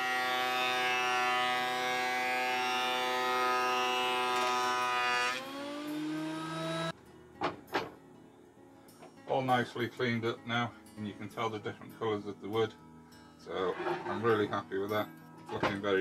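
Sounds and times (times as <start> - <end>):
thickness planer motor whine: 0.0 - 6.9.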